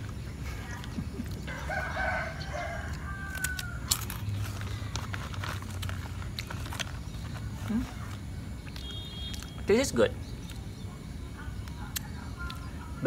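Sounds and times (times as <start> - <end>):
cracker crunching: 0.0 - 9.7
rooster crowing: 1.5 - 4.1.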